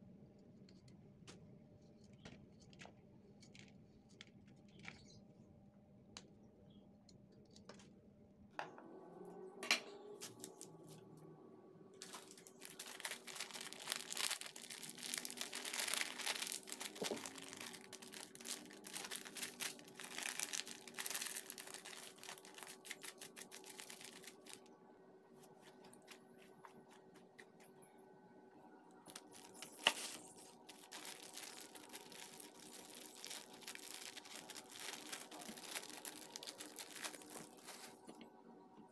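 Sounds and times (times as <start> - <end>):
faint steady hum: 0.0 - 38.9
broccoli snapping and rustling: 12.0 - 24.6, 29.1 - 38.1.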